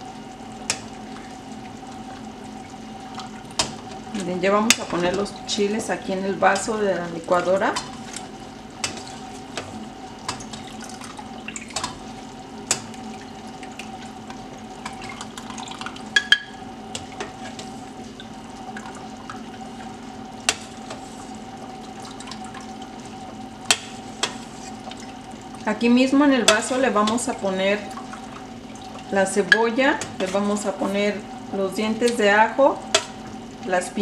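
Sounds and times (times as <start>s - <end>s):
liquid dripping: 0.0s - 32.2s
steady low hum: 0.0s - 34.0s.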